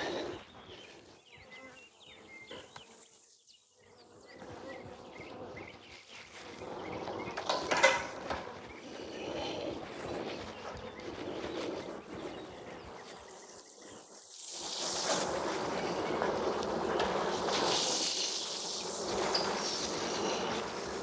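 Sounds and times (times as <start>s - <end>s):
bees buzzing: 0.0s - 21.0s.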